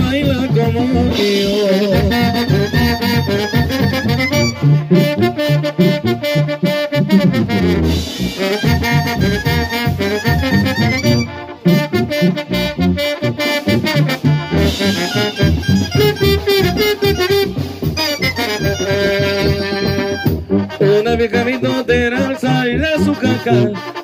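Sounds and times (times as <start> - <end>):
low bass line: 0.0 - 23.8
brass playing melody: 0.0 - 24.0
drum hits: 14.4 - 20.5.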